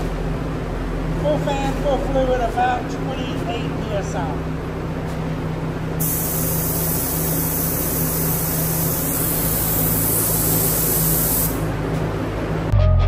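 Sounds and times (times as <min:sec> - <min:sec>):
steady low hum: 0:00.0 - 0:13.0
spray gun air hissing: 0:06.0 - 0:11.7.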